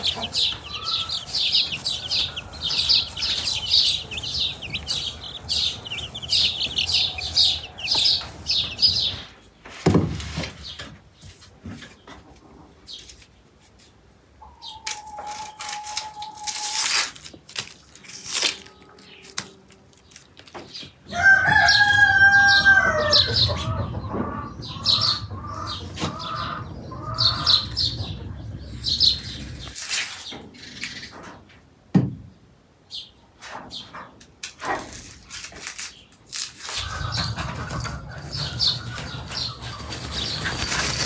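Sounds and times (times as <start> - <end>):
chicken calling loudly: 0.0 - 9.4
knife peeling onions: 34.4 - 37.0.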